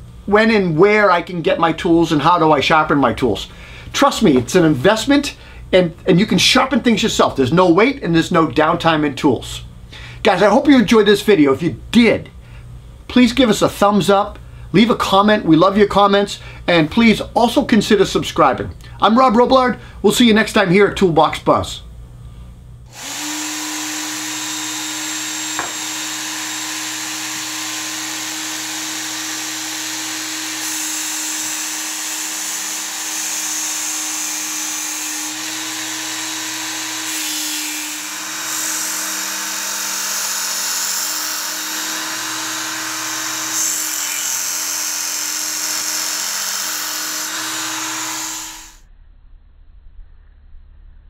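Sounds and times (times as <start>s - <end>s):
electric belt motor humming: 22.9s - 48.8s
abrasive belt grinding axe: 23.0s - 27.9s.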